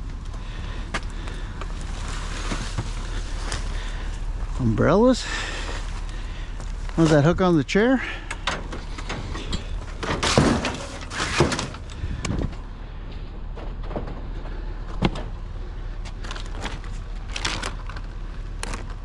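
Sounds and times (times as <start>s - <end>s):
steady low hum: 0.0s - 19.0s
items moved in trash bin: 9.1s - 12.6s.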